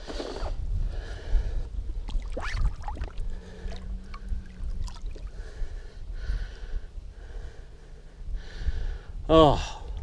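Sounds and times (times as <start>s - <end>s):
low rumble: 0.6s - 8.9s
water sloshing and gurgling: 2.0s - 5.6s.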